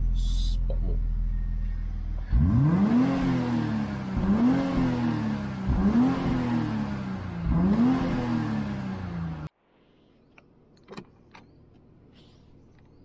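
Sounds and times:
car engine revving: 0.7 - 9.5.

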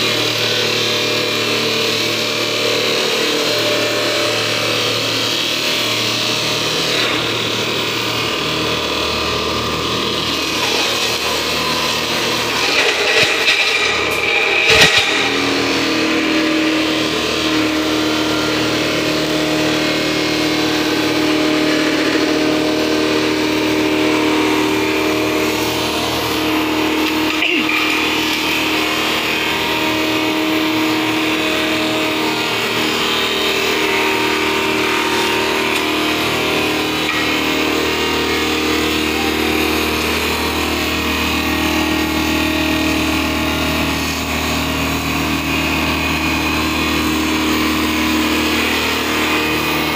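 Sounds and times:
machine grinding wood: 0.0 - 49.9.

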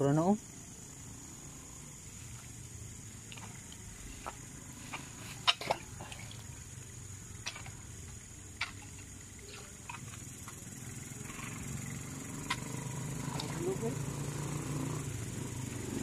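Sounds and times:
high insect drone: 0.0 - 16.0
wooden pole knocking and splashing: 5.4 - 6.4, 7.4 - 7.8.

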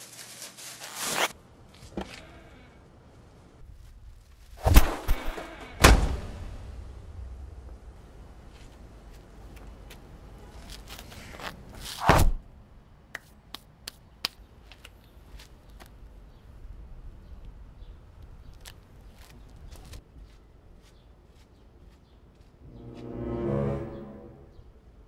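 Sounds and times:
dumpster lid slamming: 5.0 - 6.7
footsteps on pavement: 18.6 - 23.1.

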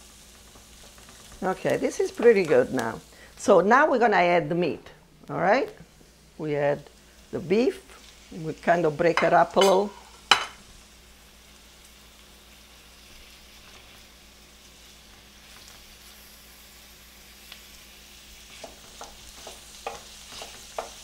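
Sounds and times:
meat and vegetables sizzling in oil: 0.0 - 21.0
wooden spoon scraping a pan: 18.4 - 21.0.

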